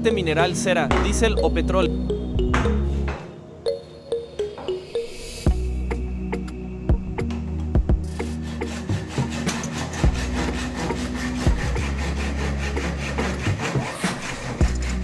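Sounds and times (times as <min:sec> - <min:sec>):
hand saw cutting wood: 0:08.1 - 0:15.0.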